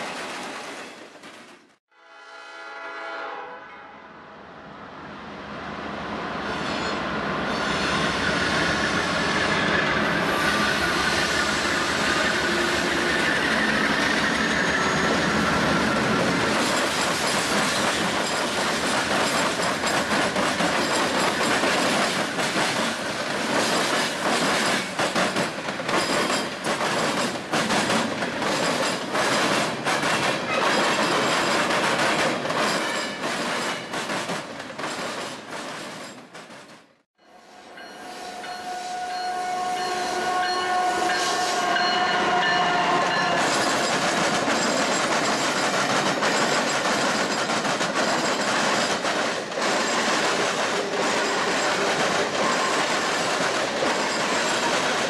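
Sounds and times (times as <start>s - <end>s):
train horn: 1.9s - 4.4s, 37.4s - 43.4s
diesel locomotives passing: 2.1s - 34.0s, 37.4s - 55.0s
train wheels clicking and clunking: 11.4s - 36.9s, 43.0s - 55.0s.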